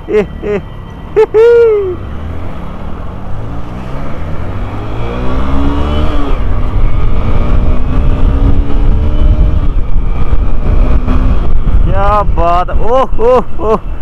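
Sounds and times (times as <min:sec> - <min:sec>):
motorcycle engine accelerating: 0:02.1 - 0:12.2.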